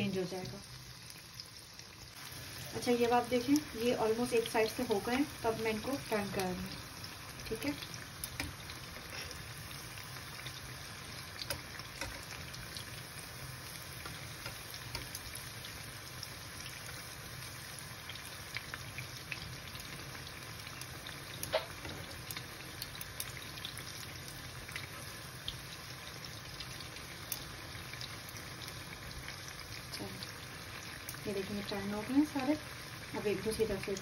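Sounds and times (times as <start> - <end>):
deep-frying sizzle with pops: 0.0 - 34.0
metal tongs turning fritters: 7.4 - 15.8, 20.9 - 22.5.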